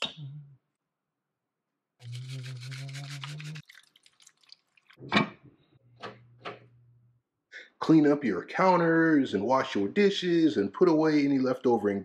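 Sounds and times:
seasoning shaker rasping: 2.0 - 3.7.

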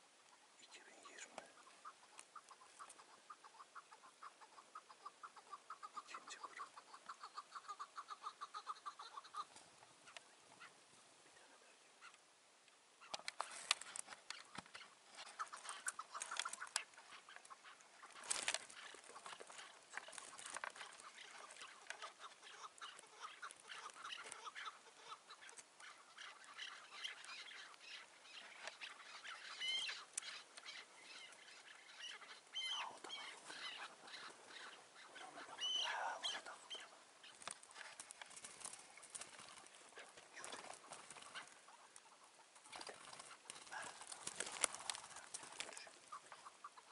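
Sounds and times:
partridges calling: 0.0 - 46.9
bird chirping calls: 13.0 - 46.9.

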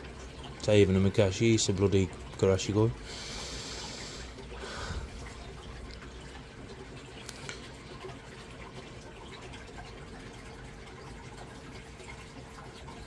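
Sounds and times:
pond water trickling: 0.0 - 13.0
water drips: 0.0 - 13.0
water gushing: 0.0 - 13.0
faint hum: 2.9 - 9.3.

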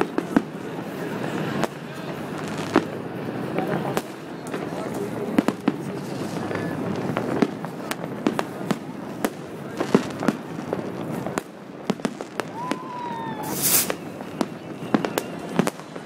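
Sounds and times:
fireworks banging: 0.0 - 16.0
loud firework hiss: 0.2 - 3.0, 9.3 - 14.4
falling firework whistle: 12.4 - 16.0.

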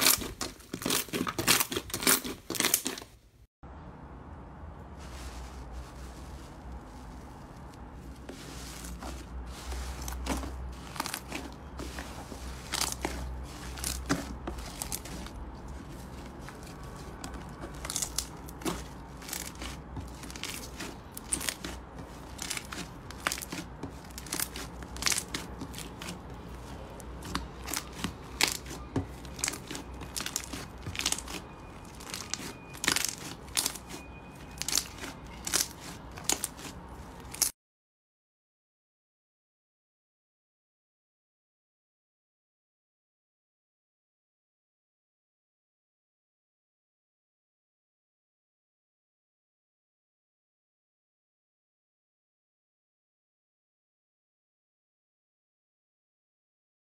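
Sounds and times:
slime crackling and popping: 0.0 - 3.0, 15.9 - 37.5.

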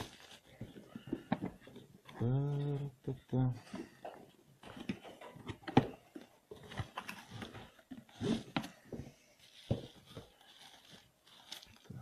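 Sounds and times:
plastic wrapping rustling: 0.0 - 1.9, 4.6 - 12.0.

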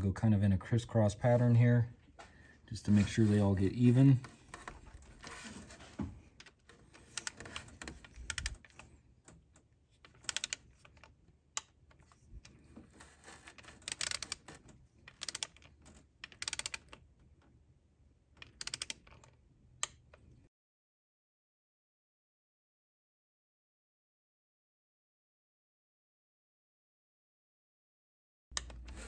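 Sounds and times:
torque wrench ratchet clicking: 13.9 - 14.3, 16.4 - 16.8.

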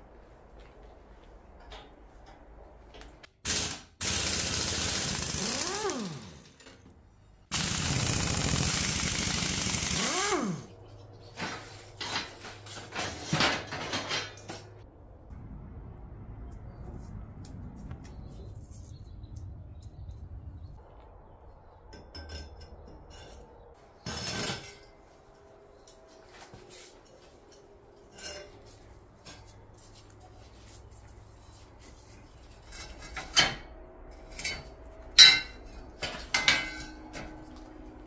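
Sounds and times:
cordless drill running: 4.0 - 6.4, 7.5 - 10.7.

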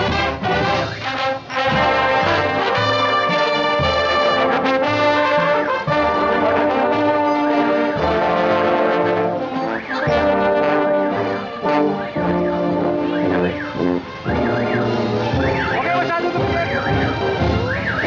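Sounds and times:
marching brass band playing: 0.0 - 18.0
sousaphone bass line: 9.6 - 18.0.

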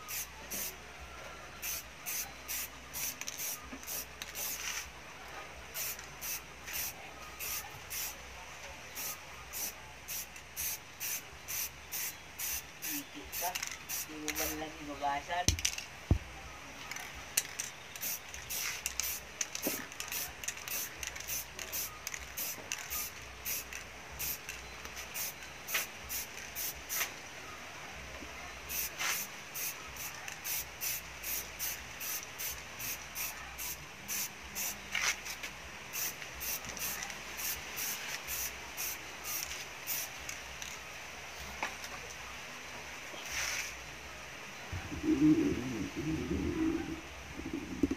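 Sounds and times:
spray paint can hissing: 0.0 - 0.7, 1.6 - 4.9, 5.7 - 8.2, 9.0 - 14.6, 17.4 - 27.1, 28.7 - 40.4.

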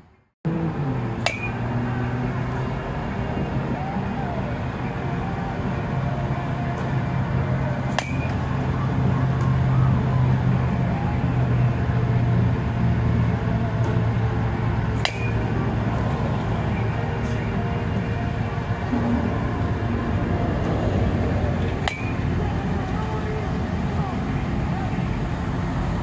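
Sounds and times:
steady low hum: 0.5 - 26.0
bat hitting softball: 1.2 - 1.9, 7.8 - 8.6, 15.0 - 16.9, 21.6 - 22.2.

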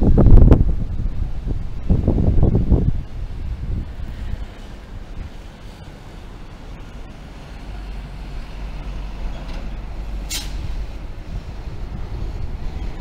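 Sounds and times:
low outdoor rumble: 0.0 - 13.0
short sharp hiss: 10.2 - 10.8.

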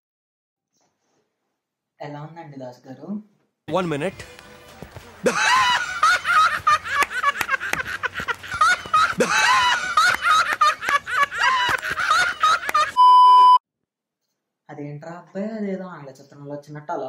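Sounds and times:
men laughing loudly: 5.2 - 13.0
hands clapping: 6.1 - 13.0
steady beep tone: 13.0 - 13.6.

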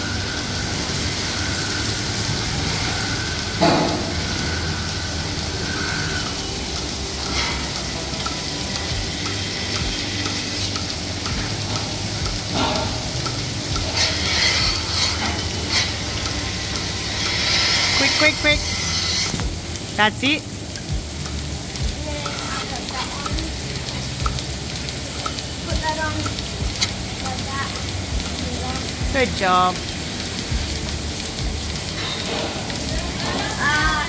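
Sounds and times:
milking machinery hiss and hum: 0.0 - 34.0
light regular clicking: 20.7 - 29.2.

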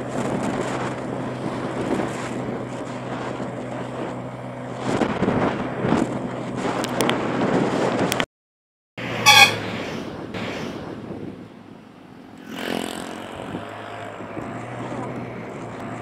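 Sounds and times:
motorbike engine and road noise: 0.0 - 8.3, 9.0 - 16.0
passing vehicle engine: 9.0 - 16.0
vehicle horn toot: 9.2 - 9.6.

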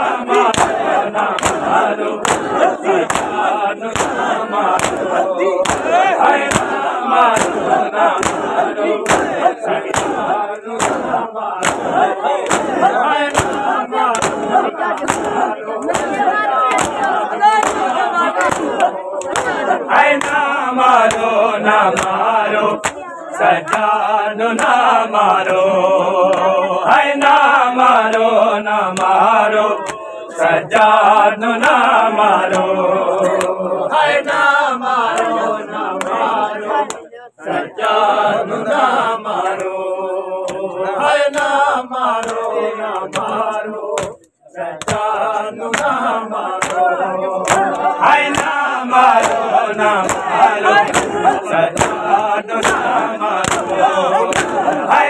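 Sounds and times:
men chanting in unison: 0.0 - 55.0
hand slaps on chest: 0.5 - 3.4, 4.0 - 4.2, 4.8 - 10.2, 10.8 - 19.6, 22.0 - 22.2, 44.8 - 45.1, 51.8 - 52.0, 53.4 - 54.6.

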